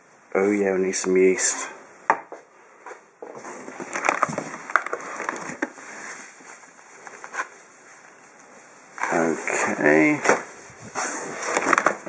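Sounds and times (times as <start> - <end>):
crinkling plastic wrap: 3.5 - 8.4.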